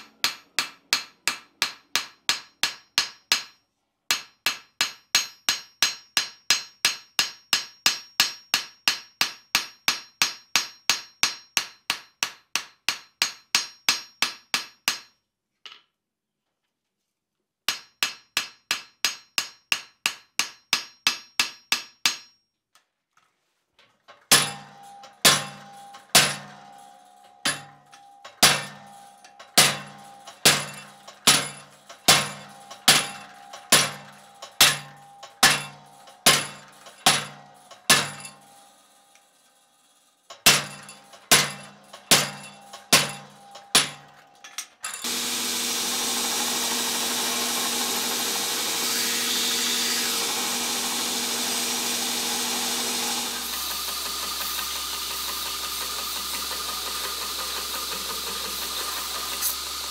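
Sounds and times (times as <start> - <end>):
belt grinder grinding steel: 24.3 - 59.9.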